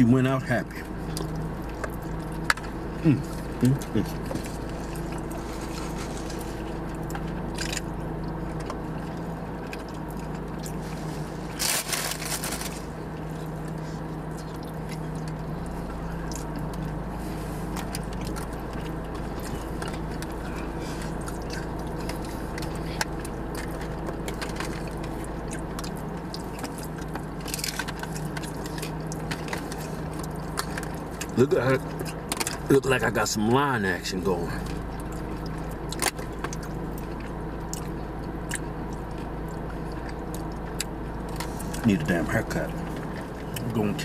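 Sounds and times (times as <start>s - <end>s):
car engine idling: 0.0s - 44.0s
person chewing: 0.9s - 32.7s, 34.6s - 41.8s
food wrappers crinkling: 11.1s - 13.0s.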